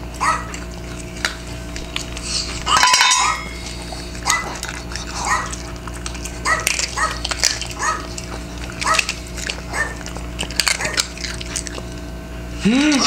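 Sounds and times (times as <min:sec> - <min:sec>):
recorded dog barks: 0:00.2 - 0:00.6, 0:04.2 - 0:04.6, 0:05.2 - 0:05.6, 0:06.4 - 0:08.1, 0:09.7 - 0:10.0.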